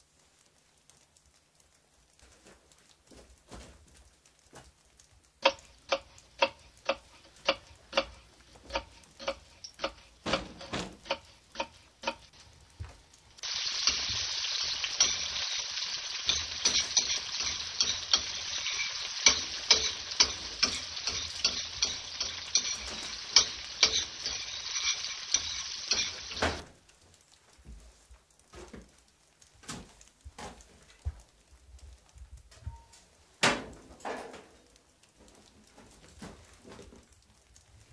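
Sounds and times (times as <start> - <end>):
crackling hiss with sharp pops: 0.0 - 37.9
regular ticking: 5.2 - 27.0.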